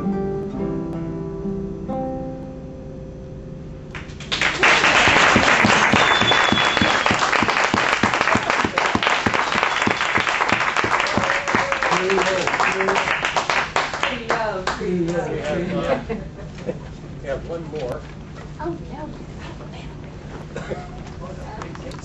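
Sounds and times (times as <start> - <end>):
classical guitars playing: 0.0 - 3.4
audience applause: 4.0 - 14.9.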